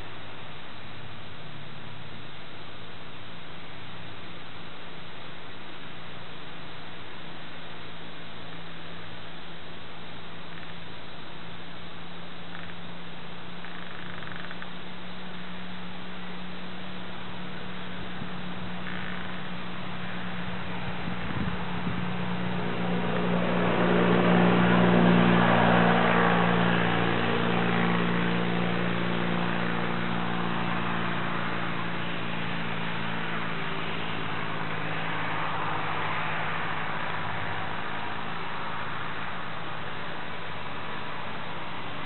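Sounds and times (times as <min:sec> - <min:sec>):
steady low hum: 0:00.0 - 0:42.0
motor engine passing: 0:10.3 - 0:42.0.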